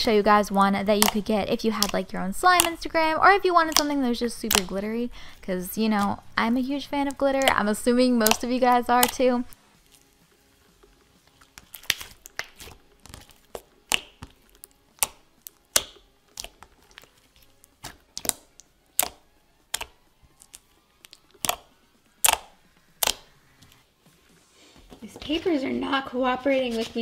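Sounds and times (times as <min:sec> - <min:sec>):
slime popping and clicking: 0:00.9 - 0:05.0, 0:06.9 - 0:09.6, 0:11.5 - 0:23.8.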